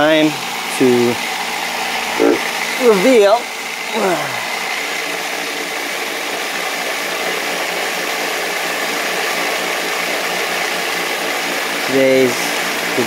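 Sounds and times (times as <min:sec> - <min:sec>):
rock tumbler motor hum: 0:00.0 - 0:13.0.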